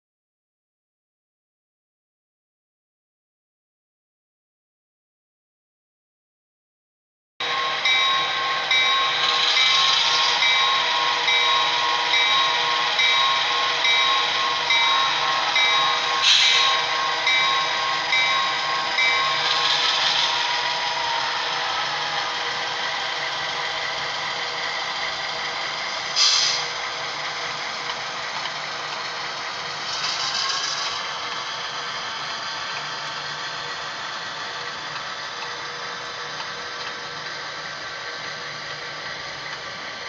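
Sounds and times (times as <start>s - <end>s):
locomotive bell ringing: 7.4s - 26.0s
short air hisses: 16.2s - 16.8s, 26.2s - 26.7s.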